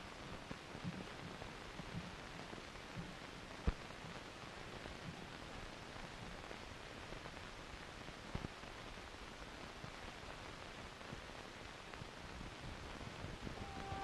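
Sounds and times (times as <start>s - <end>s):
film soundtrack hiss: 0.0s - 14.0s
faint clicks: 0.2s - 6.6s.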